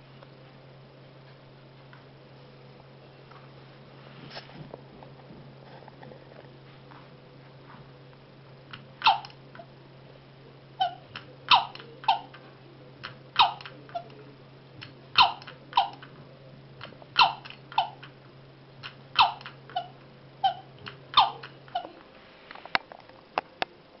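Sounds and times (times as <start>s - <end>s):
faint low hum: 0.0s - 24.0s
toy rocking chair squeaky cry: 9.0s - 9.3s, 10.8s - 12.4s, 13.4s - 14.1s, 17.2s - 18.0s, 19.2s - 22.0s.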